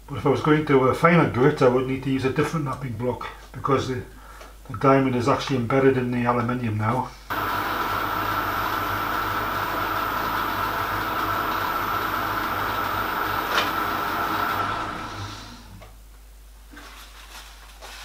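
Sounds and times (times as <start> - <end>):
metal lathe running: 7.3 - 15.8.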